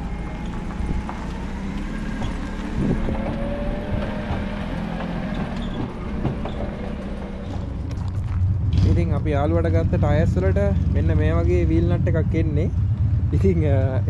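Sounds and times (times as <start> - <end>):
clanks and rattles: 0.0 - 11.0
forklift engine running: 0.0 - 12.0.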